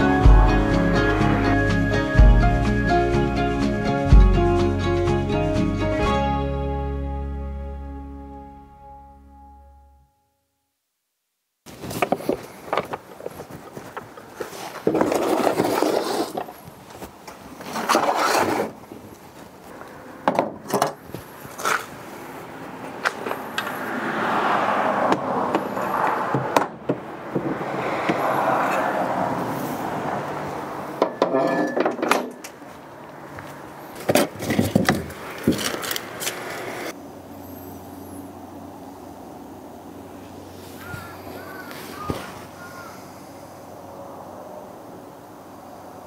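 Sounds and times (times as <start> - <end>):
wooden objects knocking and clattering: 11.8 - 16.6, 20.2 - 21.0, 31.0 - 32.6, 34.0 - 36.0.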